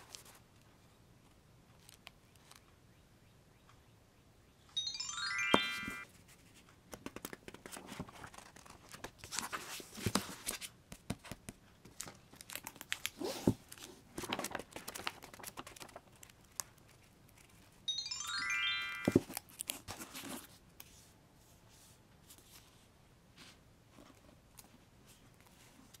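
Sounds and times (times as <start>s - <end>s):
short rising chime: 4.8s - 6.0s, 17.9s - 19.2s
paper rustling: 7.0s - 17.7s.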